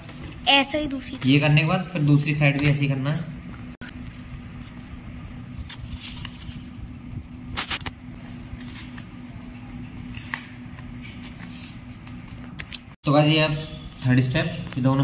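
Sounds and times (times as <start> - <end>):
steady low hum: 0.0 - 15.0
paper being folded and creased: 3.8 - 13.0.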